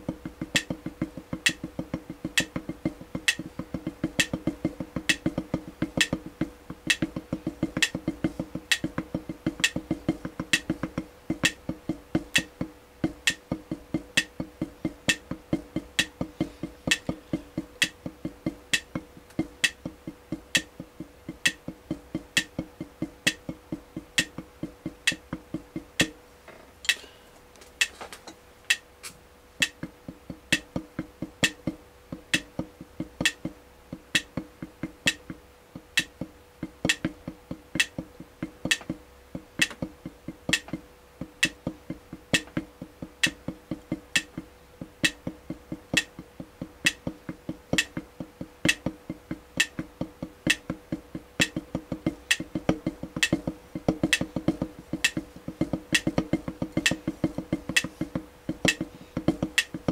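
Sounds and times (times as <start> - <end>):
drumsticks on rubber drum pad: 34.2 - 59.9.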